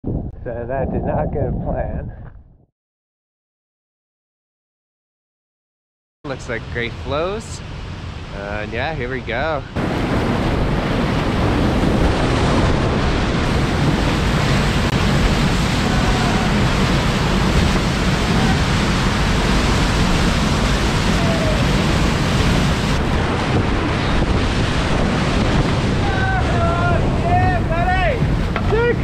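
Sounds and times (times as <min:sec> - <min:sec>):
whitewater rapids rushing: 0:11.7 - 0:29.0.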